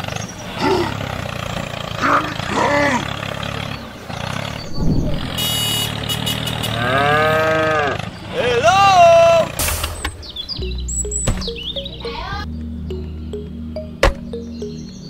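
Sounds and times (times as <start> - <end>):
pitched call-like sounds: 10.5 - 15.0
dull thud: 14.0 - 14.3.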